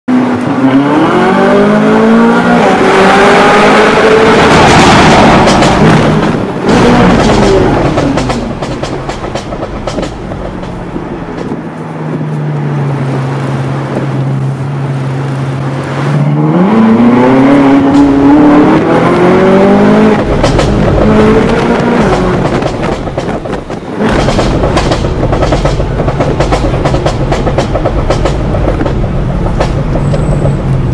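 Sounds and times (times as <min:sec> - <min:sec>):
car engine revving: 0:00.1 - 0:11.7, 0:12.3 - 0:30.9
exhaust pops and crackles: 0:20.1 - 0:30.9.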